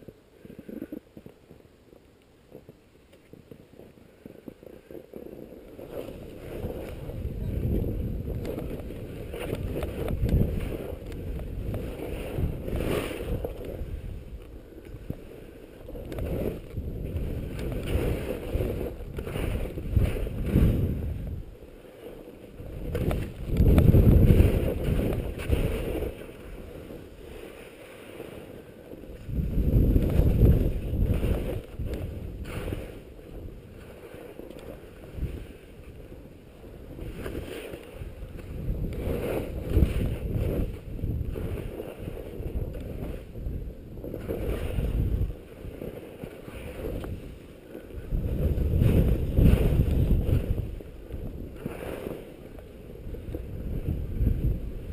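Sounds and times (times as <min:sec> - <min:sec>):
wind rushing over microphone: 0:00.0 - 0:54.9
skis hissing on snow: 0:23.9 - 0:43.4, 0:44.0 - 0:53.8.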